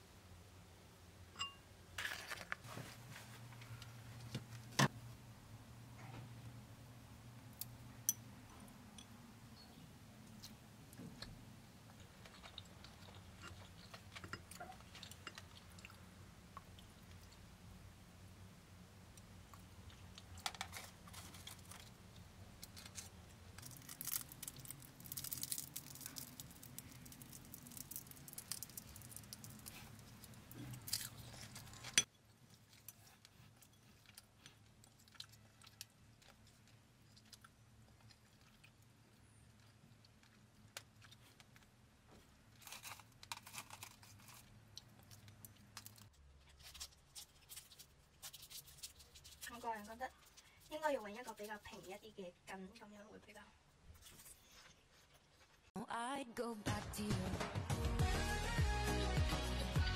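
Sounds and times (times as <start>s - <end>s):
chopsticks and spoon in ceramic bowl: 1.4s - 2.5s, 11.9s - 15.8s, 20.2s - 34.8s
food crackling: 1.4s - 4.9s, 7.5s - 17.9s, 19.0s - 52.2s.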